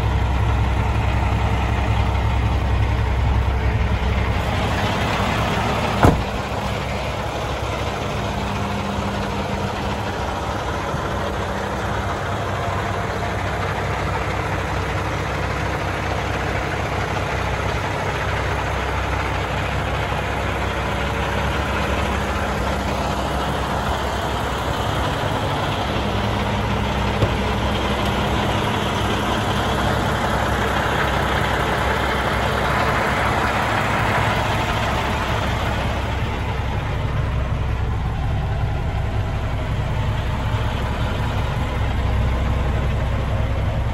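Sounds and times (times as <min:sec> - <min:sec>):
diesel truck engine idling: 0:00.0 - 0:43.9
sharp knock: 0:06.0 - 0:06.5.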